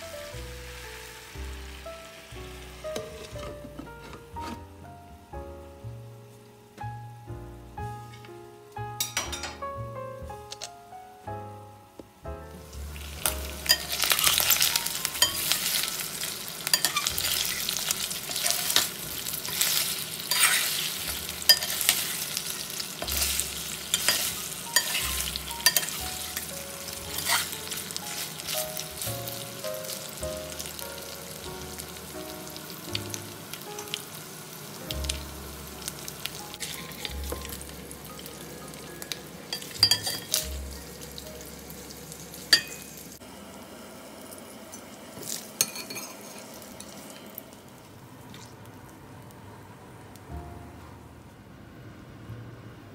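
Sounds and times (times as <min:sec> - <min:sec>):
meat sizzling in a pan: 0:00.0 - 0:03.4, 0:12.8 - 0:47.4
metal tongs clicking on pan: 0:13.6 - 0:14.6, 0:16.7 - 0:17.2, 0:21.5 - 0:22.2, 0:23.9 - 0:26.0.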